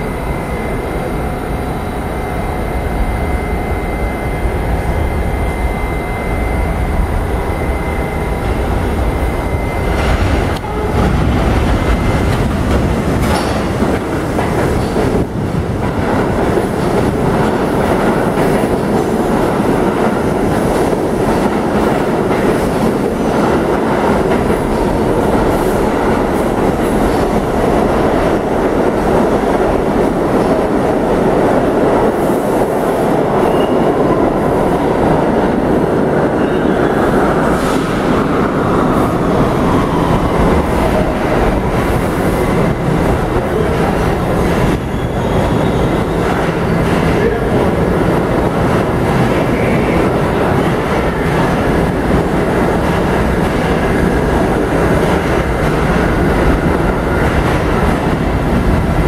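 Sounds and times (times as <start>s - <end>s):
subway train rumble: 0.0s - 59.0s
train whine: 0.0s - 59.0s
wheels clattering over rails: 10.0s - 19.2s.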